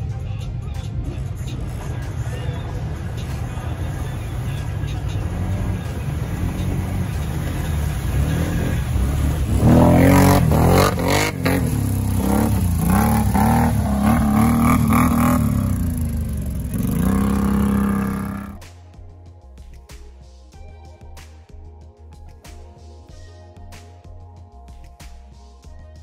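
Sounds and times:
engine revving: 1.6 - 18.6.

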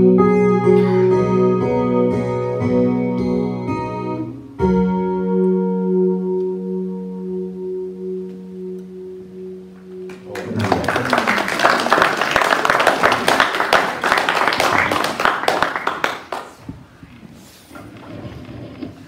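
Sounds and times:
electric guitar chord ringing: 0.0 - 11.2
audience applause: 10.1 - 16.7.

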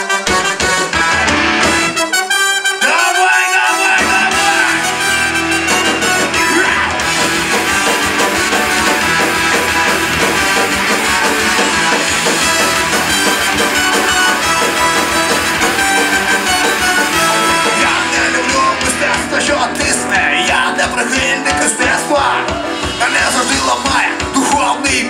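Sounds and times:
electric guitar: 0.0 - 2.0, 3.8 - 25.0
trumpet and trombone: 0.0 - 20.8
drum kit: 0.0 - 25.0.

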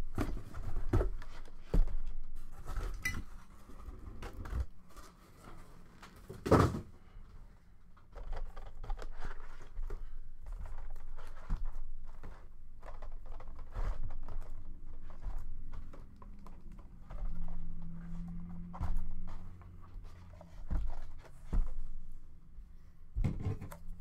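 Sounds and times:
light taps scrapes and rustling: 8.2 - 22.0.

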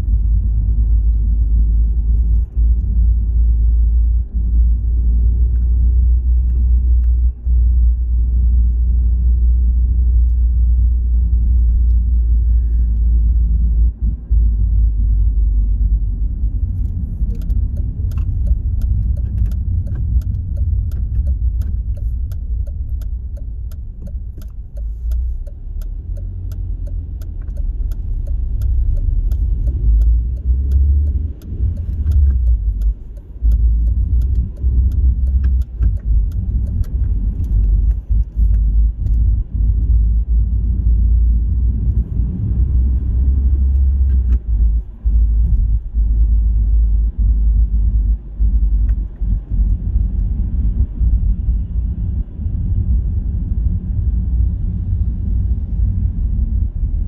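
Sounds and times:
car road and engine rumble: 0.0 - 57.0
light ticking: 16.6 - 40.0.

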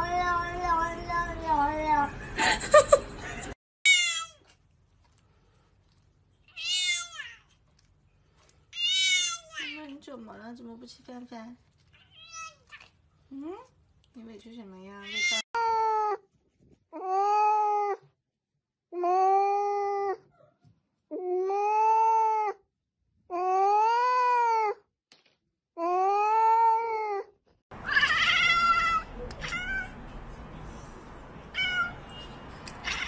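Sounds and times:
cat meowing: 3.9 - 4.4, 6.5 - 7.5, 8.8 - 9.7, 26.4 - 30.0, 31.5 - 32.1, 32.7 - 33.0
second cat crying: 3.9 - 4.4, 8.8 - 9.7, 25.9 - 30.0, 31.5 - 32.0.

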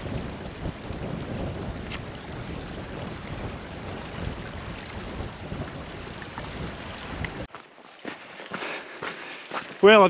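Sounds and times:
wind buffeting microphone: 0.0 - 7.5
river running over stones: 0.0 - 8.4.

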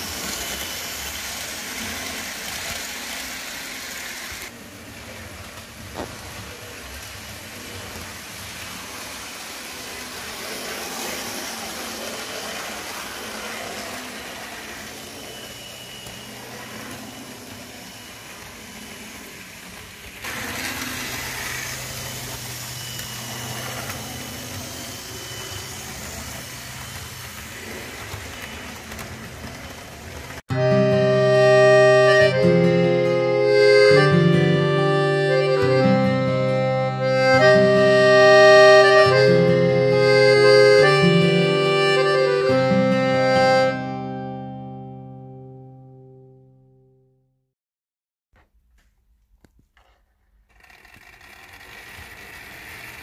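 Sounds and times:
model train motor hum: 0.0 - 30.4, 49.8 - 53.0
wheels rolling on rails: 0.0 - 30.8, 49.5 - 53.0.

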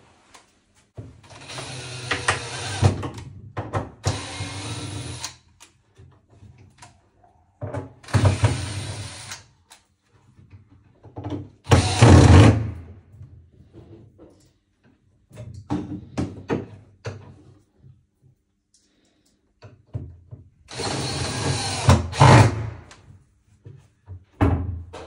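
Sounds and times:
cordless drill driving screws: 1.3 - 3.0, 4.0 - 5.3, 8.1 - 9.4, 11.7 - 12.5, 20.7 - 22.7.

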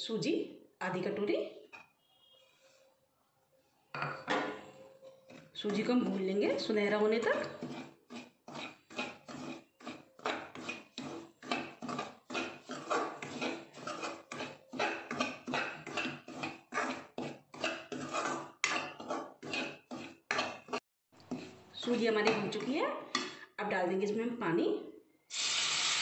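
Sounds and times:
spoon scraping a metal pan: 4.0 - 23.4.

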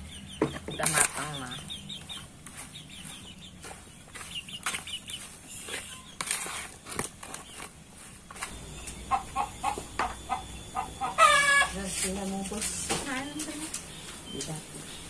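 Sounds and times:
chicken clucking: 0.0 - 6.6, 8.5 - 15.0
hands rustling leaves in a bowl: 0.8 - 8.5.

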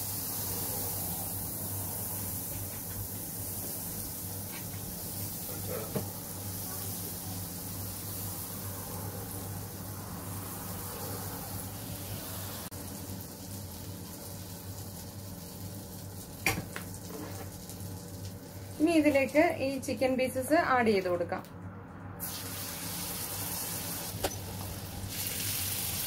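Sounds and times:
butter sizzling in a frying pan: 0.0 - 8.7, 12.3 - 16.4, 22.2 - 26.0.

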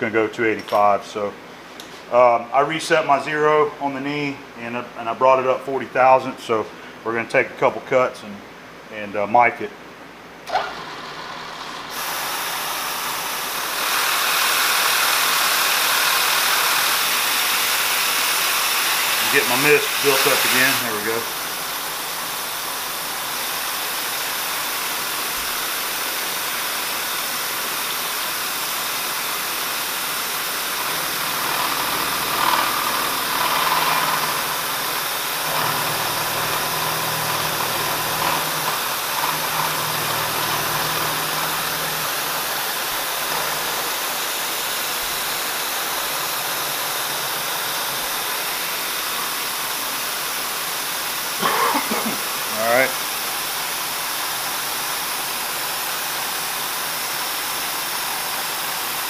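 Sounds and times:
milling machine cutting steel: 10.5 - 50.4
coolant spray hissing: 10.9 - 59.0.

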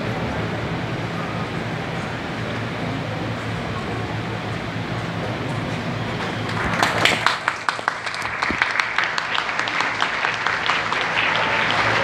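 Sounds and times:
crowd murmur: 0.0 - 12.0
crowd applause: 6.1 - 12.0.

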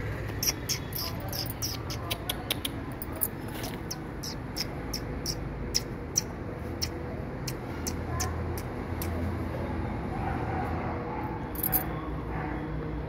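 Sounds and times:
puppies squeaking: 0.4 - 9.2.

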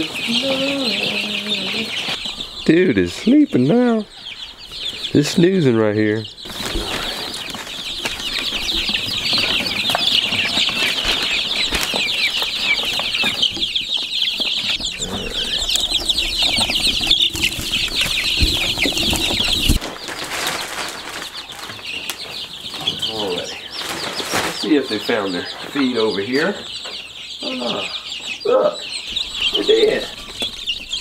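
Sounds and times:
chicks peeping: 0.0 - 31.0
feed bag rustling: 6.5 - 13.2, 14.8 - 22.2.

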